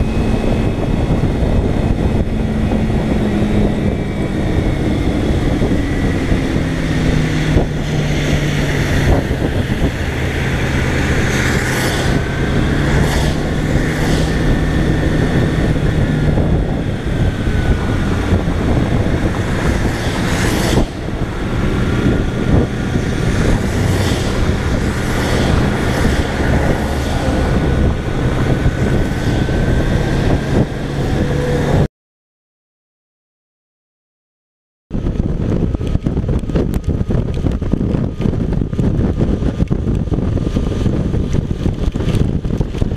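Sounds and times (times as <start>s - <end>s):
motorcycle engine running: 0.0s - 31.9s, 35.0s - 42.9s
wind rush: 0.0s - 31.9s, 34.9s - 42.9s
tyres hissing on wet road: 10.0s - 15.4s, 19.5s - 29.4s.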